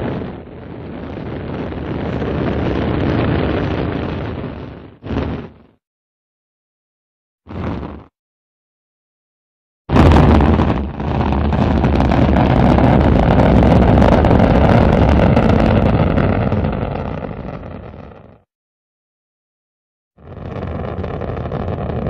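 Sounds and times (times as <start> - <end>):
rocket engine roar: 0.0 - 5.7, 9.9 - 18.4, 20.2 - 22.0.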